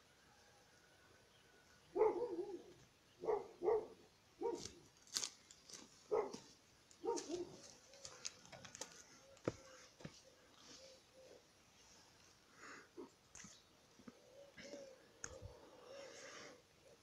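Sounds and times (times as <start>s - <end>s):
birds chirping: 1.3s - 4.6s.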